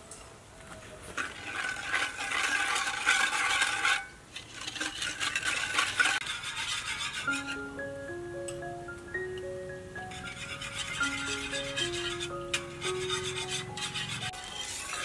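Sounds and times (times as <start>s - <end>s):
whisk scraping metal bowl: 1.1s - 7.7s, 10.0s - 15.0s
bowl ringing: 7.3s - 15.0s.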